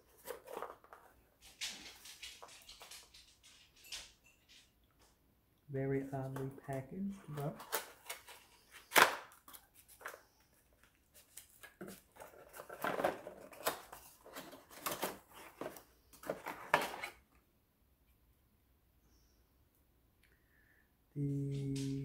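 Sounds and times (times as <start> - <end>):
cardboard scraping and rustling: 0.0 - 1.2, 11.1 - 17.2.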